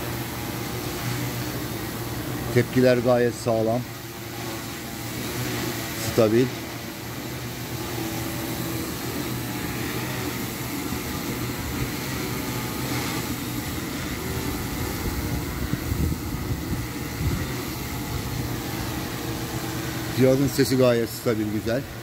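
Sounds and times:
drone propellers humming: 0:00.0 - 0:22.0
wind buffeting microphone: 0:14.2 - 0:18.9.

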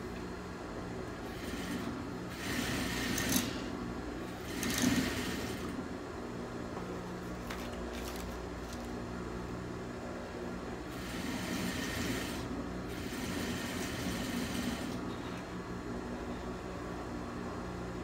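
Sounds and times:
steady low hum: 0:00.0 - 0:18.0
sewing machine stitching fabric: 0:01.2 - 0:05.8, 0:10.9 - 0:15.2.

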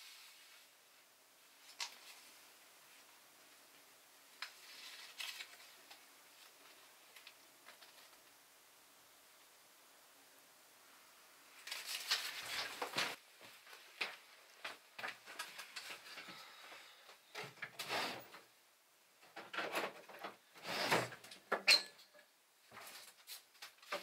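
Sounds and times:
paper rustling and scraping: 0:04.4 - 0:08.3, 0:11.6 - 0:16.6
sharp squeak: 0:21.7 - 0:22.1.

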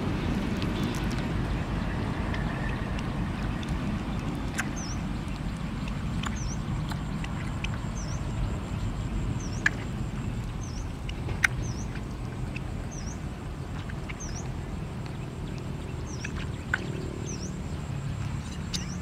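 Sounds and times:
low rumble: 0:00.0 - 0:19.0.

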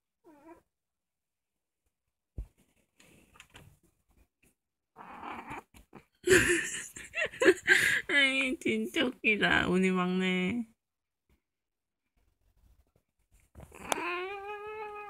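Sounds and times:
cat meow: 0:13.7 - 0:15.0.

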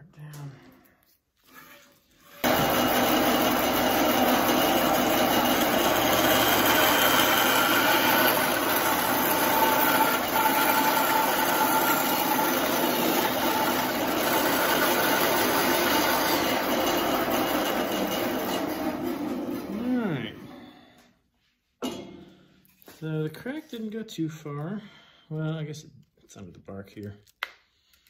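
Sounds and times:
bandsaw cutting through wood: 0:02.3 - 0:20.4.

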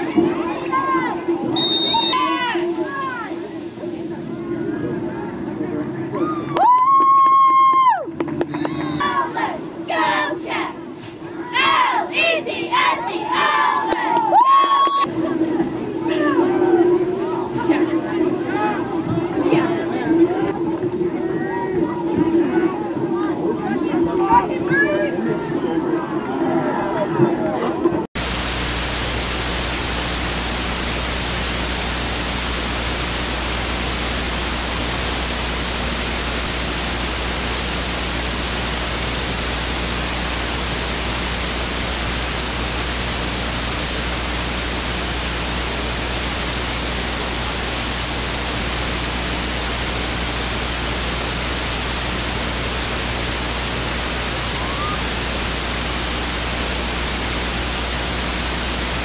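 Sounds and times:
static hiss: 0:00.8 - 0:04.5, 0:28.2 - 0:59.0.

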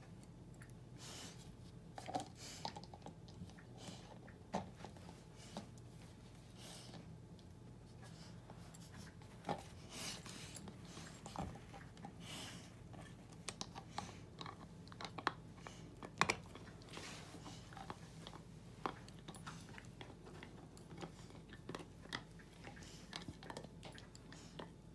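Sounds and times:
puppy gnawing on antler: 0:06.8 - 0:24.9.

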